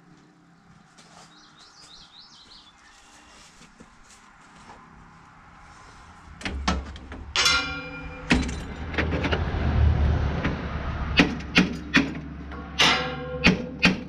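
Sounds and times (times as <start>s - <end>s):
metal clanks and knocks: 6.4s - 14.0s
ringing metal clang: 7.2s - 9.4s, 11.5s - 14.0s.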